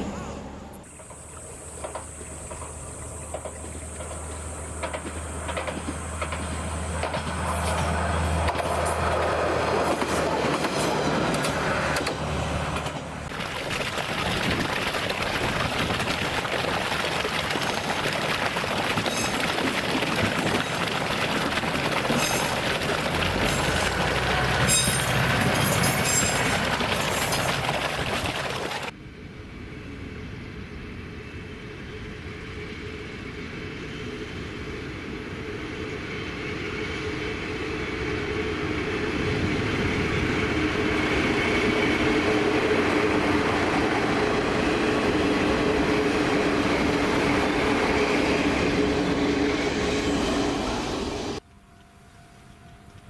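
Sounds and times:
train running on rails: 0:00.0 - 0:53.0
train wheel clicks: 0:01.0 - 0:13.1, 0:17.4 - 0:28.9.

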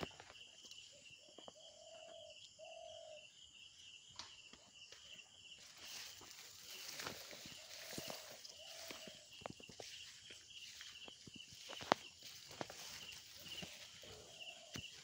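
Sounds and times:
faint insect trill: 0:00.0 - 0:15.0
low held bird calls: 0:00.0 - 0:15.0
footsteps through plants: 0:05.0 - 0:15.0.

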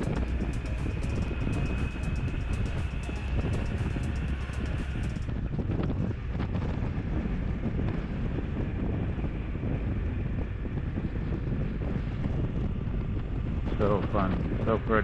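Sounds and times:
motorcycle engine: 0:00.0 - 0:05.3
road noise: 0:00.0 - 0:15.0
wind buffeting microphone: 0:00.0 - 0:15.0.

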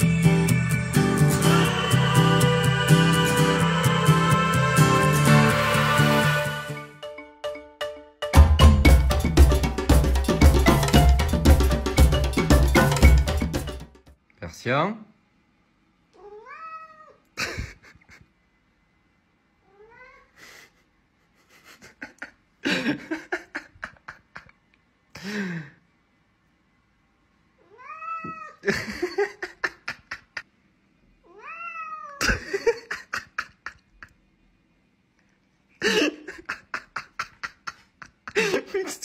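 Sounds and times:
cat meowing: 0:16.2 - 0:17.2, 0:19.6 - 0:20.3, 0:27.6 - 0:28.6, 0:31.2 - 0:32.2.

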